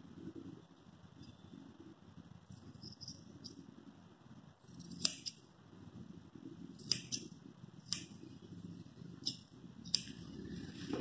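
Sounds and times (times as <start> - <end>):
low steady hum: 0.0 - 11.0
scissors snipping fur: 4.8 - 5.4, 6.8 - 7.3, 7.9 - 8.1, 9.2 - 10.2.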